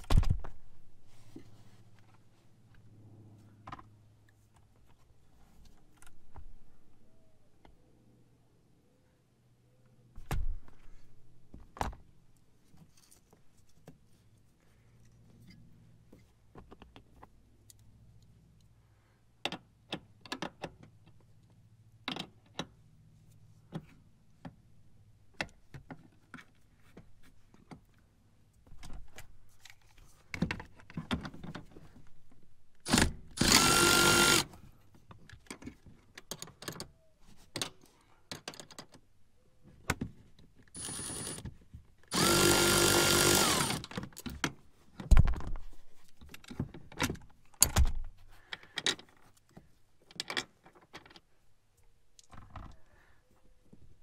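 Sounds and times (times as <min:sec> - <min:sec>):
cordless power tool whining: 0:32.9 - 0:34.6, 0:40.8 - 0:41.4, 0:42.1 - 0:43.9.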